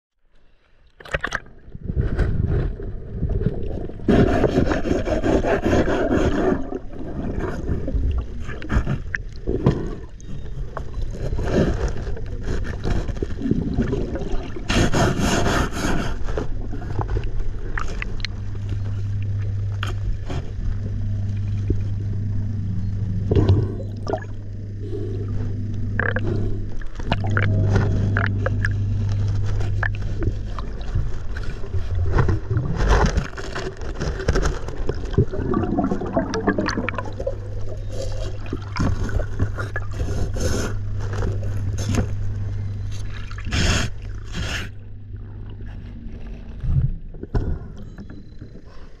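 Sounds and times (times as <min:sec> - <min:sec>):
steady low hum: 0:00.2 - 0:49.0
underwater gurgling and rushing: 0:00.8 - 0:49.0
clicks and scrapes: 0:03.4 - 0:20.6, 0:26.0 - 0:35.3.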